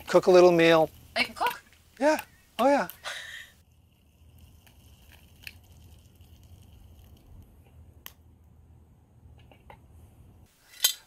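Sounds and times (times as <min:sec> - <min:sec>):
sticks crackling in fire: 0:00.0 - 0:08.6.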